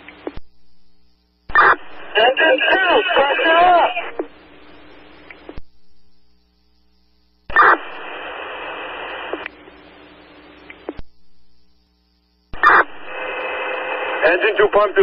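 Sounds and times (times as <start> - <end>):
radio hiss: 1.5 - 6.1, 6.8 - 11.0, 12.5 - 15.0.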